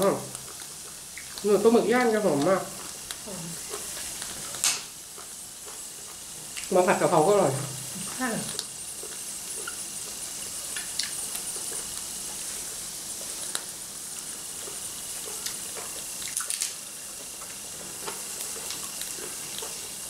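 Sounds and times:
grease popping: 0:00.0 - 0:20.0
squid sizzling on a grill: 0:00.0 - 0:20.0.

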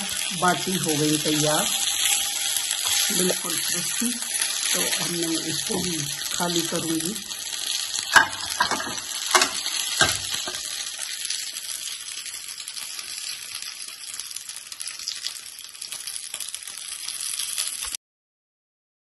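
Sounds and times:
oil sizzling in frying pan: 0:00.0 - 0:18.0
metal tongs clicking on pan: 0:08.1 - 0:10.7.

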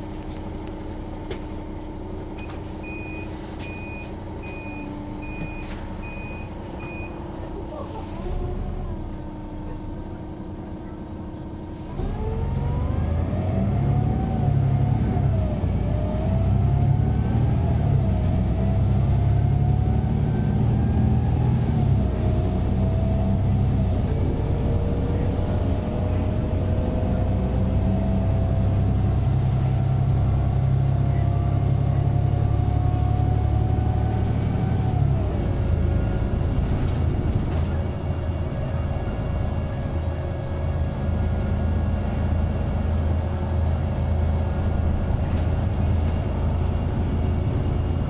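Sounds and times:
bus diesel engine: 0:00.0 - 0:48.0
air brake hiss: 0:07.7 - 0:08.4, 0:11.6 - 0:12.2.

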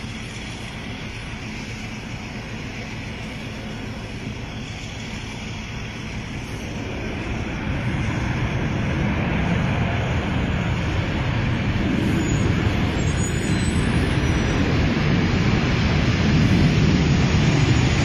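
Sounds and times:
engine rumbling: 0:00.0 - 0:18.0.

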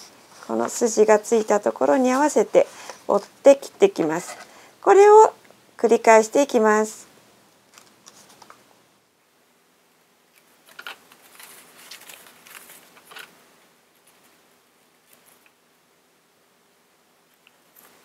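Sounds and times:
stiff paper rustling: 0:10.6 - 0:13.4.

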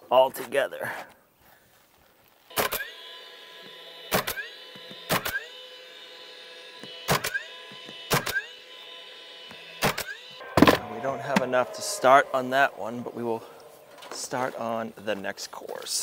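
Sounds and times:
nailer shots: 0:02.5 - 0:03.0, 0:04.0 - 0:05.6, 0:06.7 - 0:08.6, 0:09.5 - 0:12.1
electric motor whining: 0:02.5 - 0:15.0
rising whir: 0:02.6 - 0:15.0.

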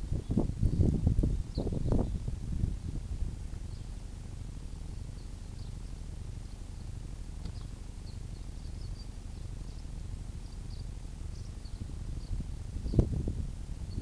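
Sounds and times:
wind rumble on microphone: 0:00.0 - 0:05.8, 0:09.7 - 0:14.0
small birds chirping: 0:00.0 - 0:14.0.

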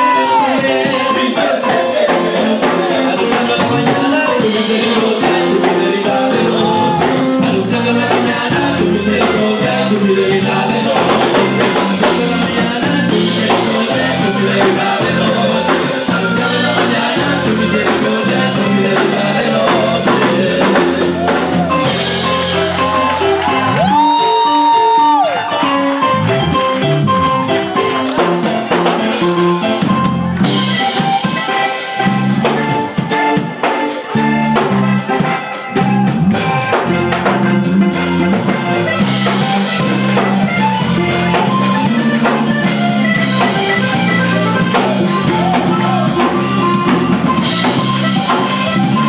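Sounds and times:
band playing latin-style music: 0:00.0 - 0:49.0
drums and percussion: 0:00.0 - 0:49.0
men singing: 0:00.0 - 0:49.0.

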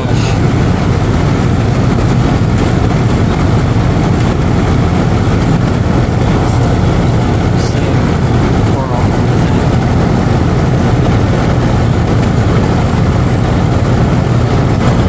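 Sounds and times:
compressor low hum: 0:00.0 - 0:15.0
condenser fan rushing: 0:00.0 - 0:15.0.

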